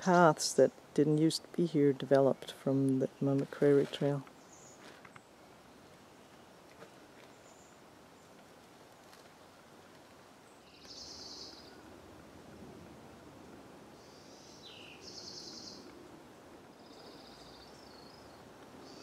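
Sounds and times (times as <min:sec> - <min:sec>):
faint woodland ambience: 0:00.0 - 0:19.0
songbird buzzy calls: 0:10.5 - 0:11.8, 0:14.0 - 0:15.9.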